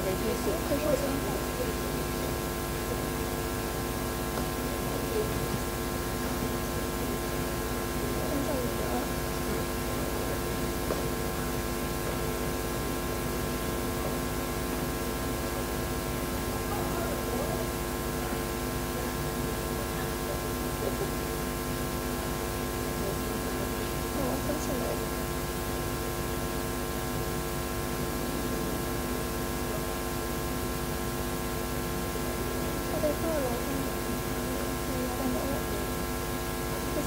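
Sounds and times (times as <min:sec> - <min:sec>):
constant hiss: 0:00.0 - 0:26.4
electrical hum with tones: 0:00.0 - 0:37.0.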